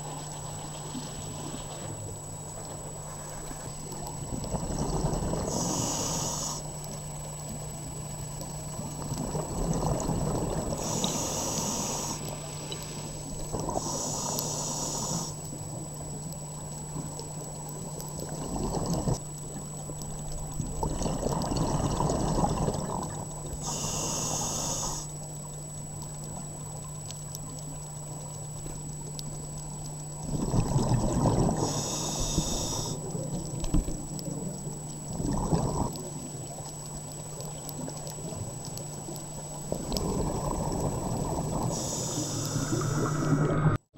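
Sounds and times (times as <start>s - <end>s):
regulator hiss on inhalation: 5.5s - 6.7s, 10.8s - 13.0s, 13.8s - 15.4s, 23.6s - 25.1s, 31.6s - 33.0s, 41.6s - 43.8s
bubbling on exhalation: 20.8s - 23.2s, 30.2s - 31.7s, 35.1s - 35.9s, 39.8s - 41.8s.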